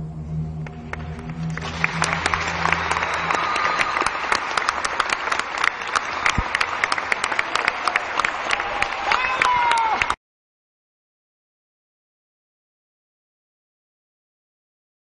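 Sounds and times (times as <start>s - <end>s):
audience applauding: 0.6s - 10.2s.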